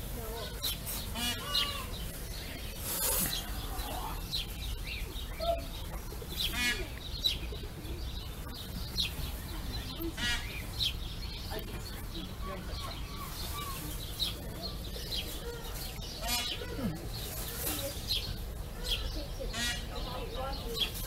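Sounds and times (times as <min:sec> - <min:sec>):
animal chirps and trills: 0:00.4 - 0:04.6.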